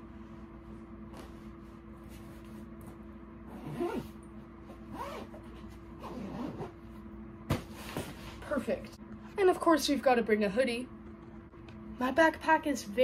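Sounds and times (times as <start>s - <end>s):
steady low hum: 0.0s - 13.0s
backpack zipper being pulled: 3.5s - 4.2s, 4.9s - 5.4s, 6.0s - 6.8s.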